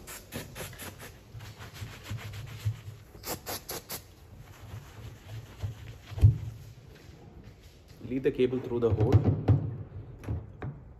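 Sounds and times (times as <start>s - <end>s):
aerosol spray can hissing: 0.0s - 1.3s, 3.1s - 4.2s.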